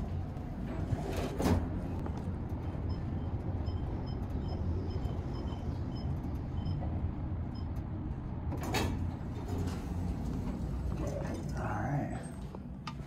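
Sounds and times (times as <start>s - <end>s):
elevator rumbling: 0.0s - 13.0s.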